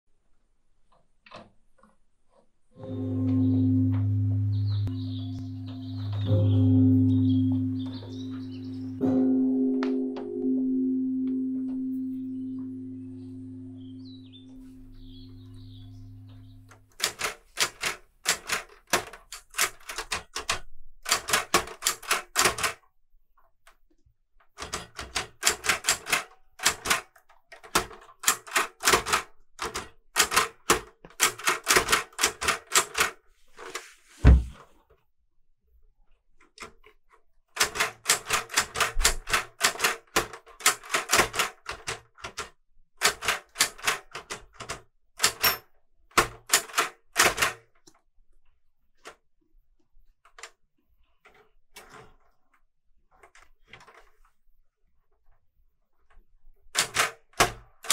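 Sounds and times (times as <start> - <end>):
typewriter keys clacking: 16.9 - 22.8, 24.6 - 33.2, 37.6 - 47.6, 56.8 - 57.9
heavy thump: 34.2 - 34.6.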